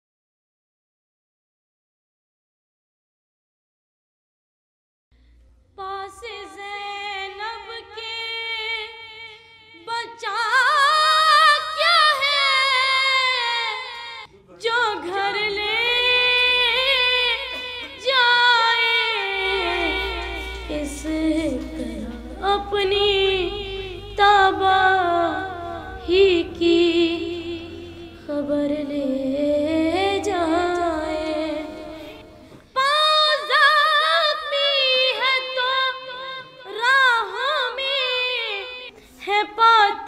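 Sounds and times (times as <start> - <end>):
person singing slow elegy: 15.0 - 35.1.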